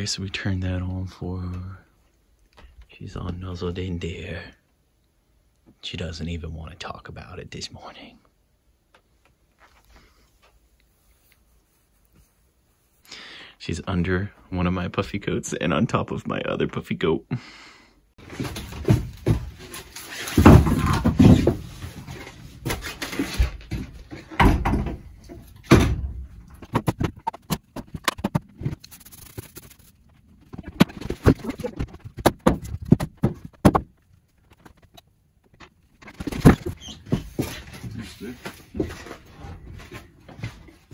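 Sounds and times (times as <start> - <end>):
firewood logs knocking and thudding: 18.2 - 28.8, 30.6 - 35.0.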